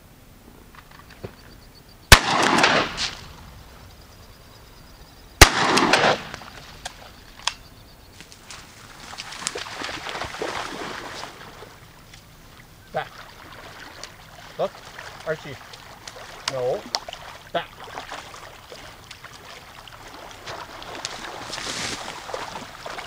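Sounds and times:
shotgun shots with echo: 2.1s - 3.3s, 5.4s - 6.5s
dog splashing in water: 9.0s - 11.8s, 13.1s - 23.0s.

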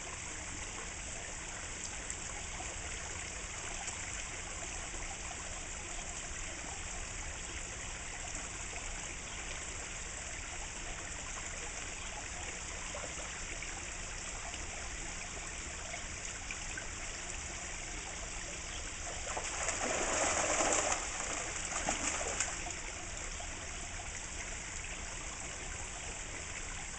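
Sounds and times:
fountain trickling into pond: 0.0s - 26.9s
fish splashing at surface: 19.2s - 22.7s.

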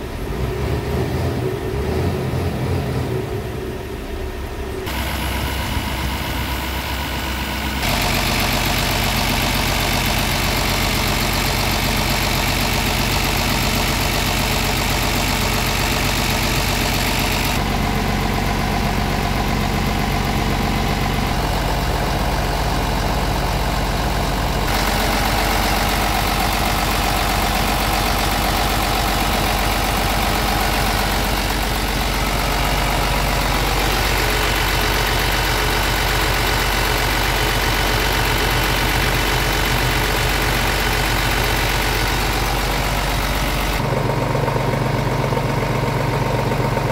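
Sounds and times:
diesel truck engine idling: 0.0s - 46.9s.

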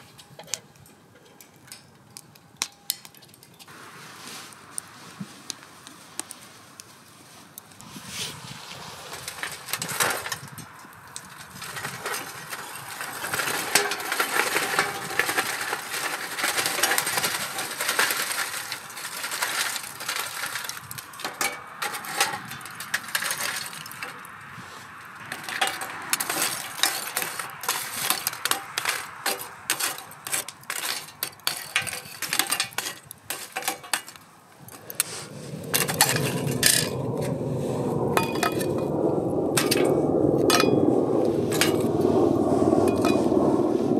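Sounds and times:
charcoal clinking and crackling: 9.1s - 24.4s, 25.1s - 37.0s
steady rushing sound: 34.6s - 43.9s.

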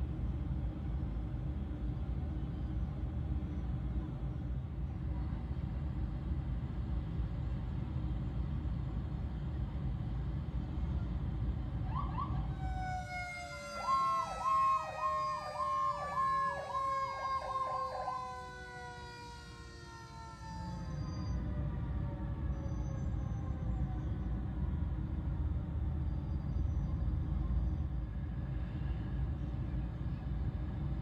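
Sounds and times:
vehicle engine rumble: 0.0s - 31.0s
rapid pulsing siren: 11.8s - 24.9s
siren sliding down in pitch: 11.9s - 21.4s.

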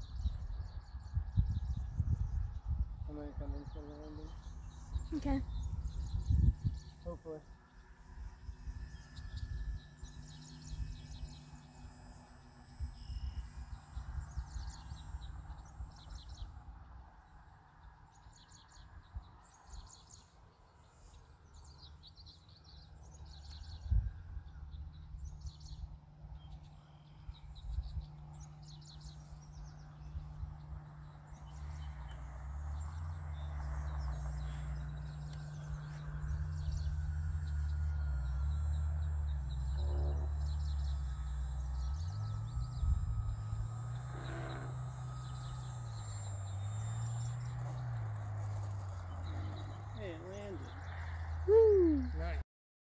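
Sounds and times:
wind rumble on microphone: 0.0s - 7.2s, 23.0s - 26.6s, 27.2s - 52.4s
birds chirping: 0.0s - 52.4s.

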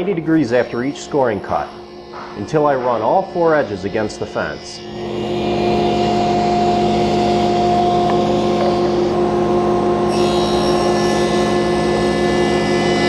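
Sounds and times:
table saw cutting board: 0.0s - 13.0s.

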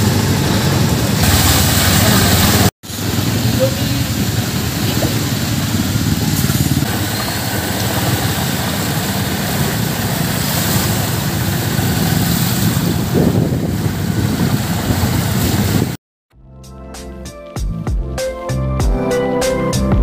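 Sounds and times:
motorcycle engine running: 0.0s - 16.0s
rushing hiss of water: 0.0s - 16.0s.

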